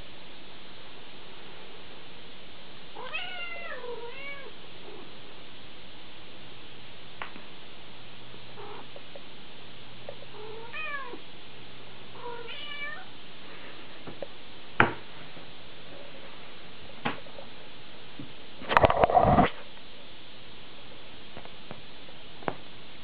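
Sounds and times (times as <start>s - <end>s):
steady hiss: 0.0s - 18.6s
cat meowing: 10.4s - 11.2s, 12.2s - 13.1s.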